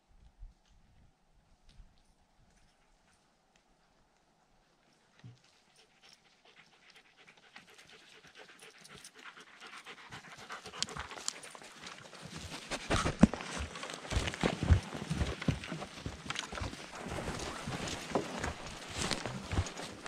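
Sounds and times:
dog panting: 5.4 - 20.0
quick footfalls on a path: 12.2 - 20.0.

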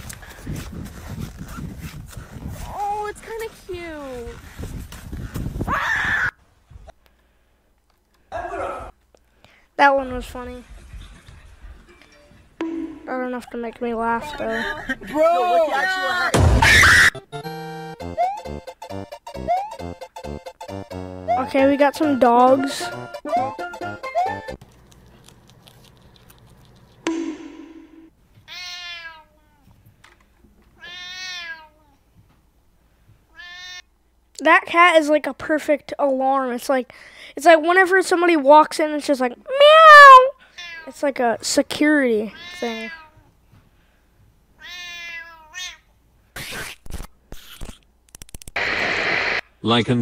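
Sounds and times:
rustling noise: 0.0 - 5.7
sudden noise: 12.6 - 13.2, 16.3 - 17.1, 27.1 - 28.1, 48.6 - 49.4
cat meowing: 28.5 - 29.6, 30.8 - 31.9, 33.3 - 33.8, 42.3 - 43.2, 44.6 - 45.8.

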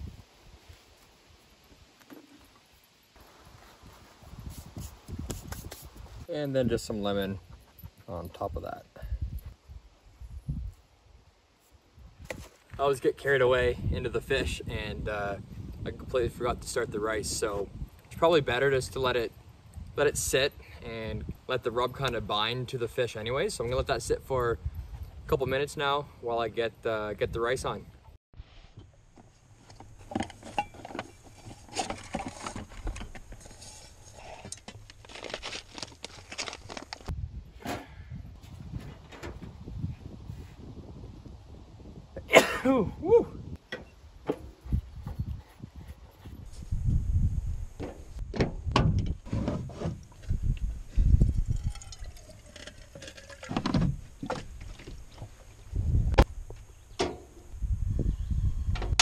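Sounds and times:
camp cooking gear clunking: 29.6 - 35.6, 37.6 - 39.7, 43.6 - 45.2, 47.7 - 50.3, 51.6 - 55.6, 56.6 - 57.5
water pouring into metal pot: 51.4 - 53.5.

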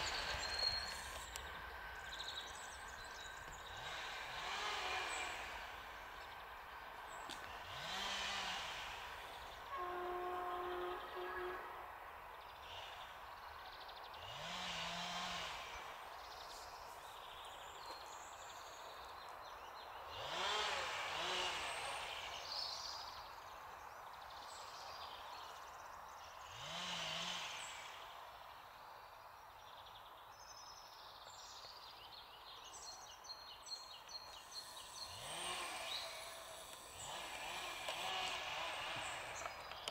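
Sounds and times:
diesel train rumble: 0.0 - 11.5, 34.2 - 39.9
birds chirping: 0.0 - 11.6, 12.3 - 20.6, 27.6 - 39.9.

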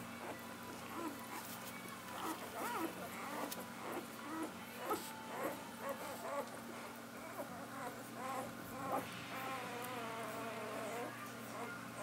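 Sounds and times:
low steady hum: 0.0 - 12.0
puppies squeaking and whining: 0.0 - 12.0.

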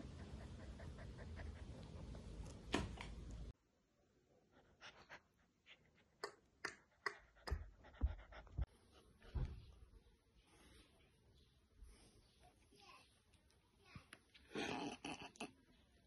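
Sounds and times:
puppy panting: 0.0 - 3.2, 4.6 - 9.6.

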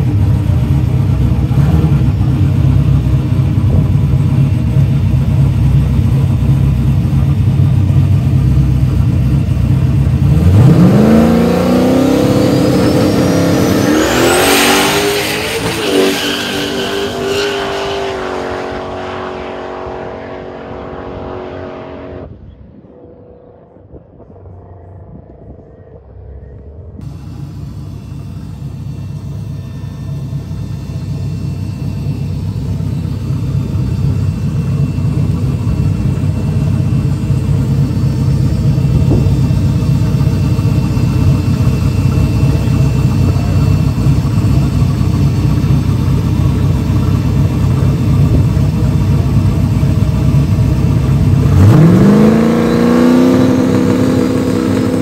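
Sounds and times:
truck engine revving and launching: 10.2 - 22.4, 51.3 - 55.0.

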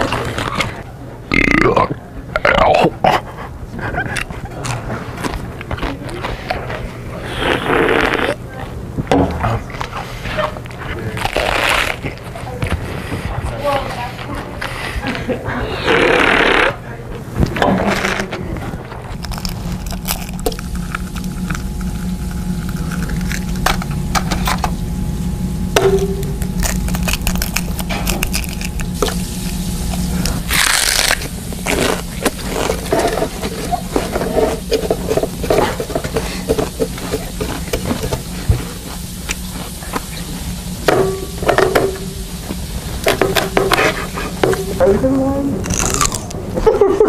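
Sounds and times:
steady low hum: 0.0 - 47.0
food sizzling on a grill: 27.9 - 44.8
utensils scraping and clattering: 29.9 - 38.8.

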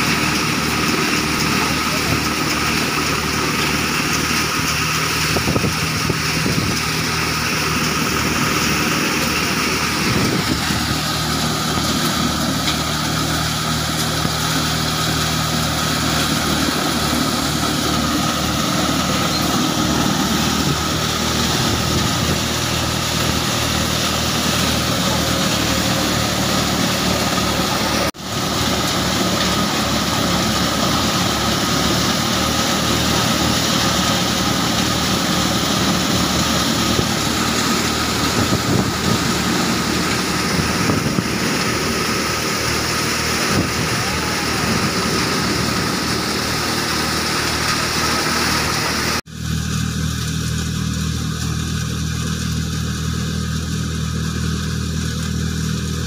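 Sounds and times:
engine drone: 0.0 - 56.0
threshing machinery whirring: 0.0 - 56.0.

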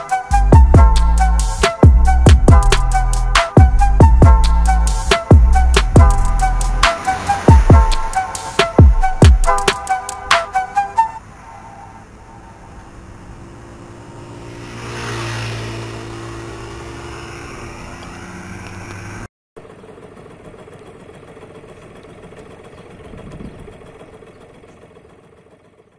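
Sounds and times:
vehicle engine passing: 0.0 - 19.3.

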